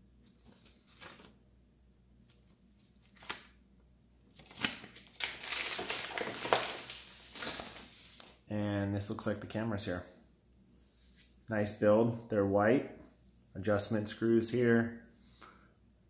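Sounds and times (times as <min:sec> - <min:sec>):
faint paper rustles: 0:00.2 - 0:01.4, 0:04.3 - 0:08.4
plastic wrapping crinkling: 0:04.4 - 0:08.4.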